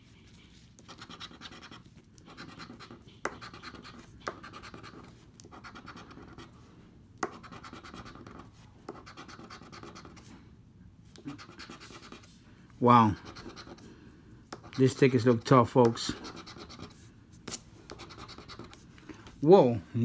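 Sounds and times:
chip scratching a lottery ticket: 0.7s - 6.5s, 7.2s - 10.2s, 11.2s - 12.3s, 12.9s - 13.8s, 14.5s - 17.0s, 17.9s - 18.8s.

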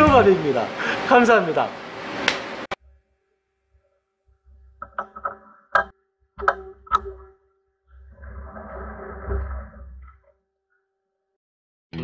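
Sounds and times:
sharp metallic clicks and knocks: 4.8s - 7.4s.

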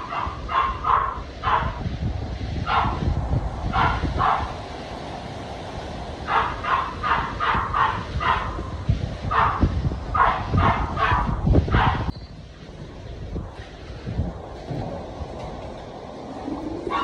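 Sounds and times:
dog barking: 0.0s - 1.8s, 2.7s - 3.0s, 3.7s - 4.5s, 6.3s - 8.6s, 9.3s - 12.1s
wind rumble on microphone: 0.0s - 17.0s.

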